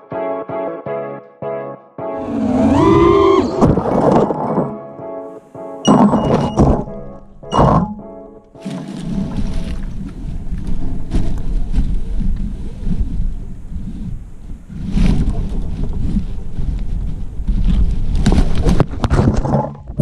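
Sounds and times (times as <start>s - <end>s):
wind buffeting microphone: 9.0s - 20.0s.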